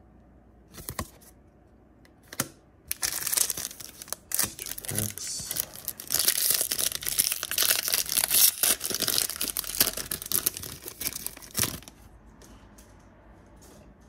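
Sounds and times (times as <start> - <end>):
foil wrapper crinkling and tearing: 2.9 - 12.0.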